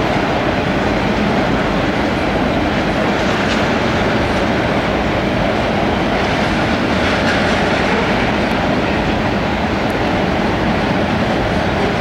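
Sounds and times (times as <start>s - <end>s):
steel train wheels on rails: 0.0s - 12.0s.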